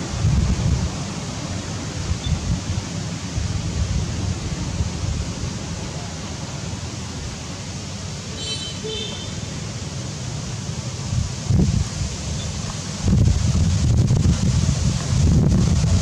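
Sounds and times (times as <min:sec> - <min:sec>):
wind buffeting microphone: 0:00.0 - 0:05.8, 0:11.1 - 0:16.0
steady outdoor hiss: 0:00.0 - 0:16.0.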